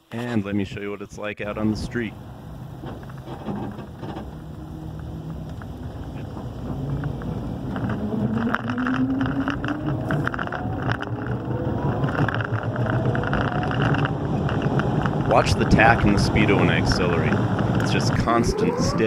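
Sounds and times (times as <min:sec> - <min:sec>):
road and tyre noise: 0:01.4 - 0:19.0
electric motor whining: 0:15.0 - 0:19.0.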